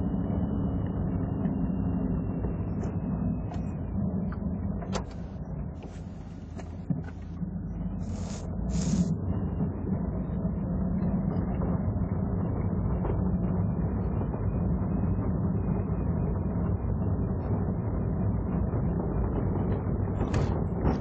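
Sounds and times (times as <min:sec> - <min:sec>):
bassy car cabin rumble: 0:00.2 - 0:10.2, 0:17.2 - 0:21.0
suspension rustling and shuffling: 0:05.0 - 0:07.4.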